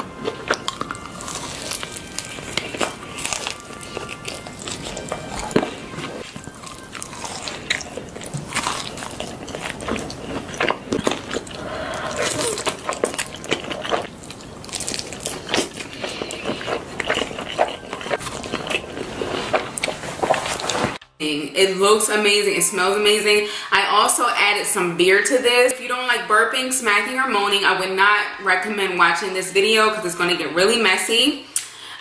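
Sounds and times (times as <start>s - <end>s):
biting and chewing: 0.0s - 21.0s
crunching fried chicken: 0.0s - 21.0s
slurping noodles: 0.4s - 21.0s.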